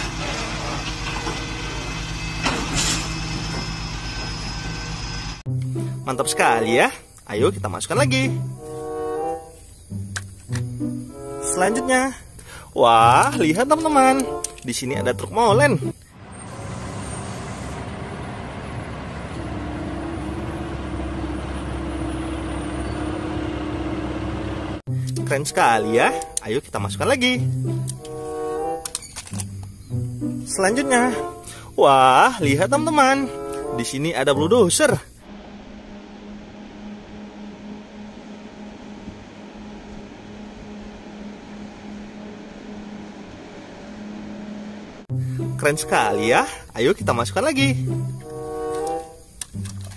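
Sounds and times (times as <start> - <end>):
diesel truck engine running: 0.0 - 5.5, 15.9 - 25.0, 34.4 - 46.2
steady hum: 35.1 - 45.1.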